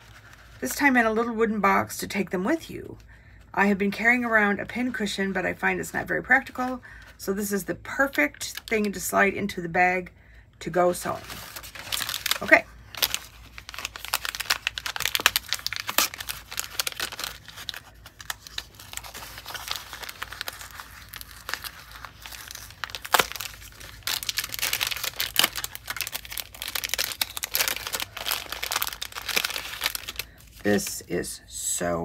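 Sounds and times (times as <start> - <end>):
plastic packaging crinkling: 10.9 - 31.1.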